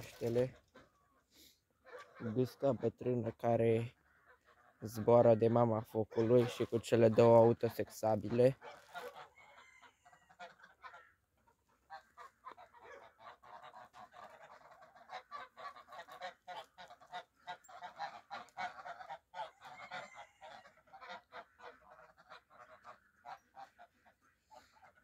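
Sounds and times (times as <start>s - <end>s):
geese honking: 0.0s - 25.0s.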